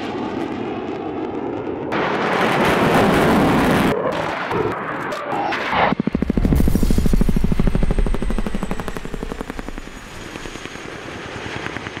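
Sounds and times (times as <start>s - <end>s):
faint high turbine whine: 3.8s - 12.0s
helicopter rotor blade slap: 5.8s - 10.9s.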